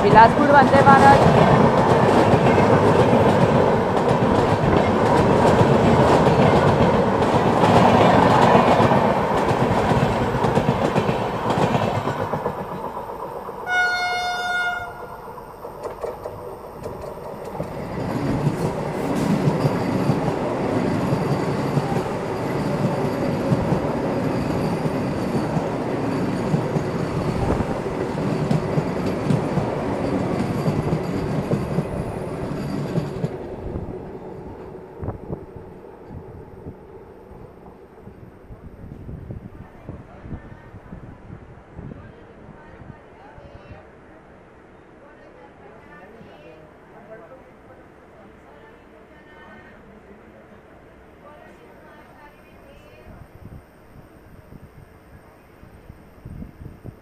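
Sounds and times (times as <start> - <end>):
passing train rushing and rumbling: 0.0 - 44.6
train horn blast: 13.6 - 15.2.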